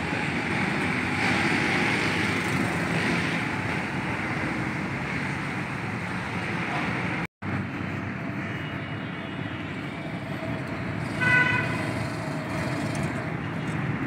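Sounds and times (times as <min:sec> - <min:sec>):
city traffic noise: 0:00.0 - 0:14.0
vehicle horn toot: 0:11.1 - 0:11.9.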